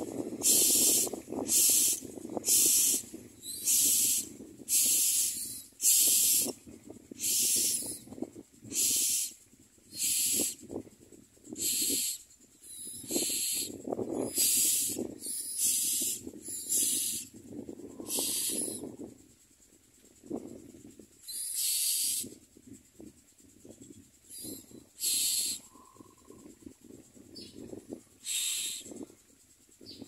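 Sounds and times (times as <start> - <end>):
nestlings hissing begging calls: 0.3 - 6.6, 7.2 - 10.6, 11.5 - 18.8, 21.2 - 22.3, 24.3 - 26.5, 27.3 - 29.0.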